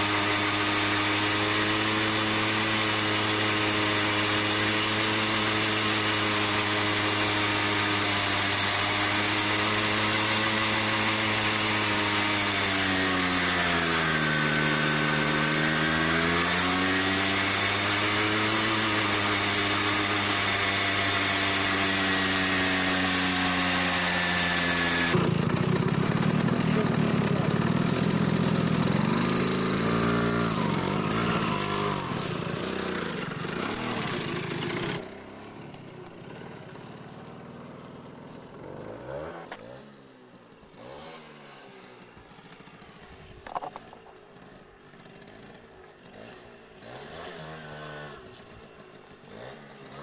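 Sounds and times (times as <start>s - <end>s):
rear tyre spinning: 0.0s - 39.8s
two-stroke moped engine revving: 0.0s - 50.0s.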